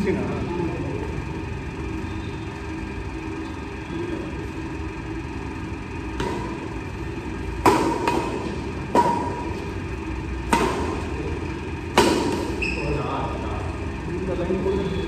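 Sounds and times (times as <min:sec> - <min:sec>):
badminton racket hitting shuttlecock: 0:06.1 - 0:11.2, 0:11.8 - 0:12.7.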